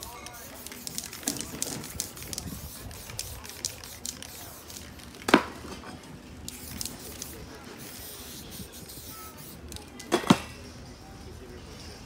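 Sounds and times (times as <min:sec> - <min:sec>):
spray-paint can hissing: 0:00.0 - 0:05.1, 0:06.5 - 0:09.9.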